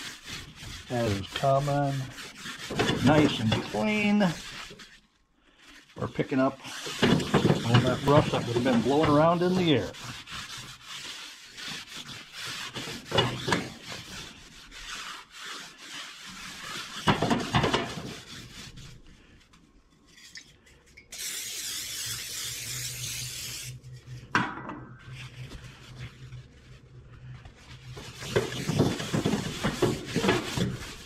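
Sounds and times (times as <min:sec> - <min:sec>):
pad scrubbing cast iron: 0:00.0 - 0:05.1, 0:05.7 - 0:19.4, 0:27.6 - 0:31.0.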